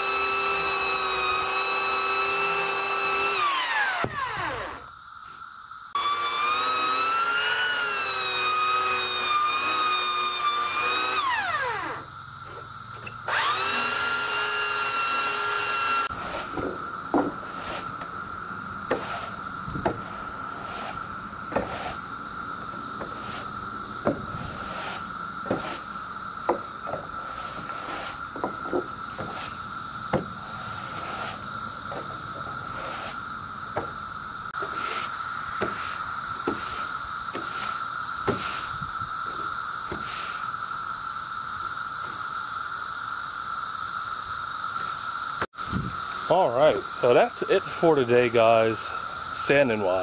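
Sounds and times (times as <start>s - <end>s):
belt sander whining: 0.0s - 4.9s, 6.0s - 18.1s
push broom scraping: 6.0s - 18.1s, 18.9s - 22.1s, 23.0s - 25.9s, 26.9s - 29.6s, 30.4s - 33.9s, 34.6s - 40.5s.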